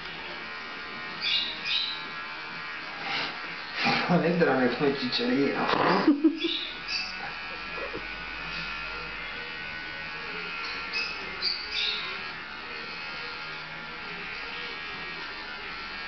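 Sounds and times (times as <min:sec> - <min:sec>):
electric clippers buzzing: 0:00.0 - 0:16.0.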